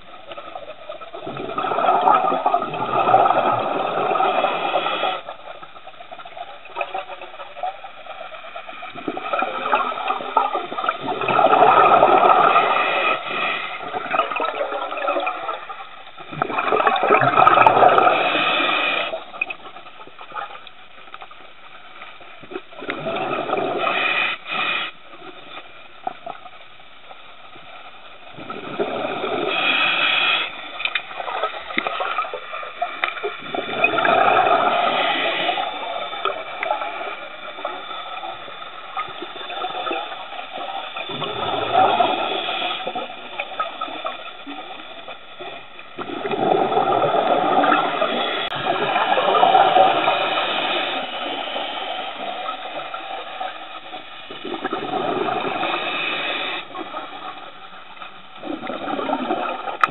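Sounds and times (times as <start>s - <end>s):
regulator bubbles gurgling: 0.0s - 59.9s.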